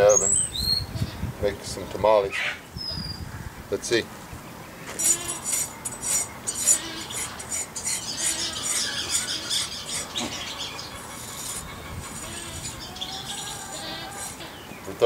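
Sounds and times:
squeaky scraping on hide: 4.8 - 14.7.

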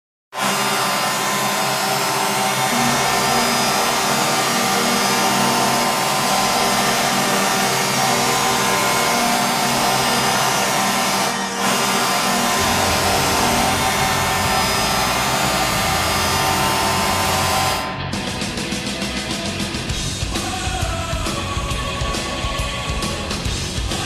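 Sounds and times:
arena goal horn blast: 0.4 - 18.2.

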